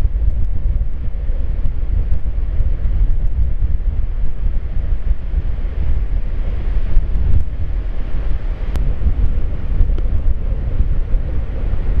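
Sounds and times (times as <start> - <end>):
gusty wind on microphone: 0.0 - 12.0.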